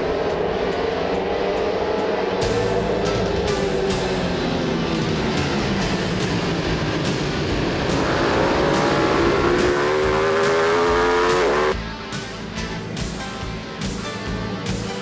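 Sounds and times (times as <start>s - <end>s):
motorcycle engine revving: 0.0s - 11.8s
background music with steady beat: 0.0s - 15.0s.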